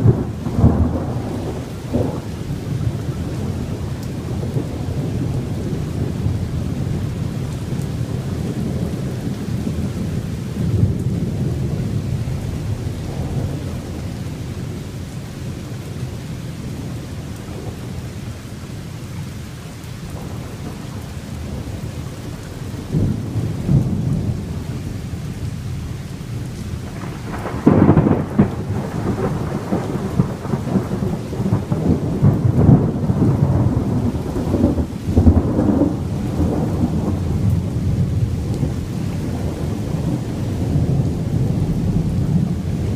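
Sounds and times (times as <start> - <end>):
thunder crack: 0.0 - 2.3, 26.9 - 42.9
thunder rumbling: 0.0 - 19.0, 19.8 - 42.9
rain hiss: 0.0 - 42.9.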